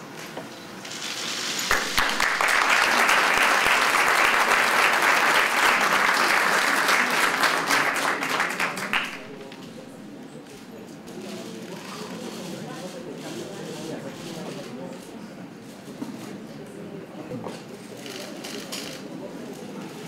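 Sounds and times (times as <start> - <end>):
audience applauding: 1.7 - 9.4.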